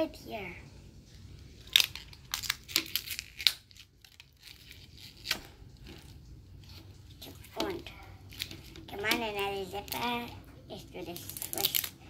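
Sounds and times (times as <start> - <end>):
paper sticker ripping: 1.6 - 5.5, 11.1 - 12.0.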